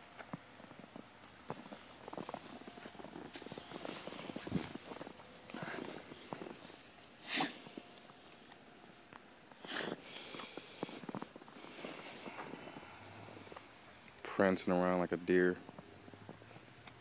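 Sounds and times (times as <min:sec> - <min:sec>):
paws crunching in snow: 0:00.6 - 0:13.7.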